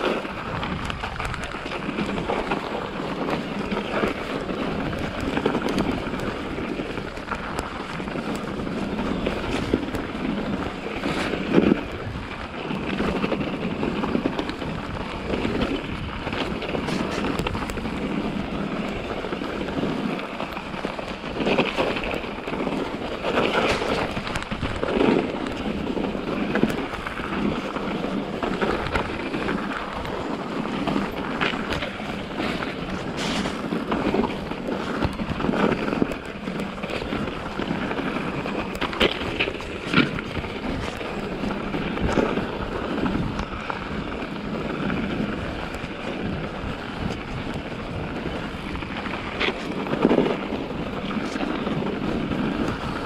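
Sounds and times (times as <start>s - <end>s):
bike knocking and rattling: 0.0s - 53.0s
bike tyre noise: 0.0s - 53.0s
wind on microphone: 0.0s - 53.0s.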